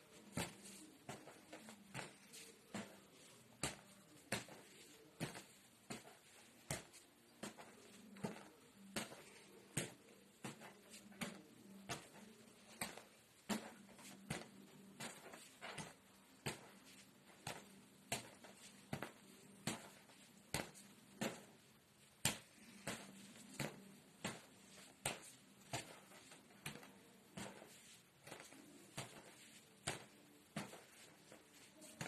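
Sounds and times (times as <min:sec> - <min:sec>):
rubber ball bouncing on floor: 0:00.3 - 0:21.6, 0:22.2 - 0:32.0.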